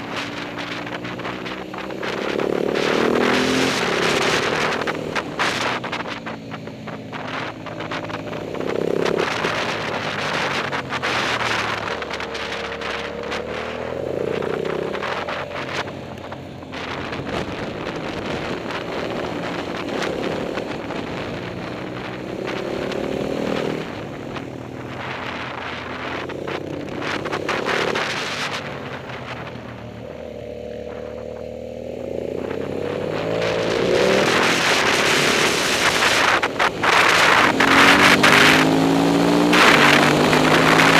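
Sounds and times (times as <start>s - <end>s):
motorcycle engine revving: 0.0s - 40.9s
wind rushing over microphone: 0.0s - 40.9s.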